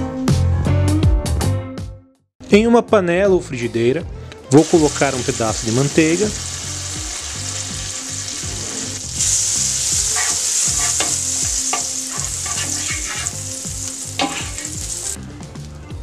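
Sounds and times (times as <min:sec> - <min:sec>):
butter sizzling in frying pan: 0:04.6 - 0:15.2.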